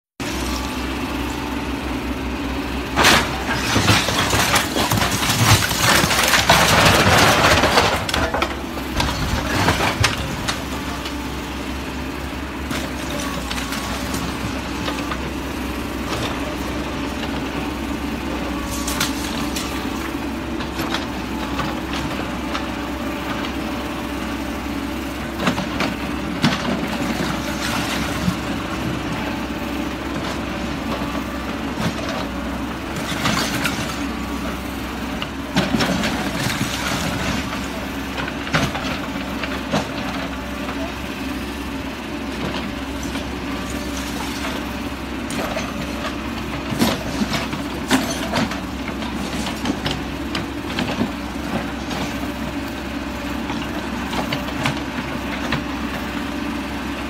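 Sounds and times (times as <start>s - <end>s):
diesel engine running: 0.0s - 57.0s
bricks and rubble crashing: 3.0s - 10.9s.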